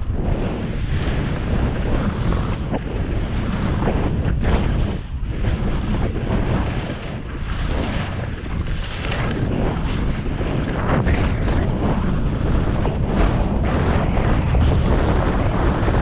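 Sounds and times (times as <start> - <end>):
wind rushing over microphone: 0.0 - 16.0
ski edges scraping snow: 0.7 - 11.6.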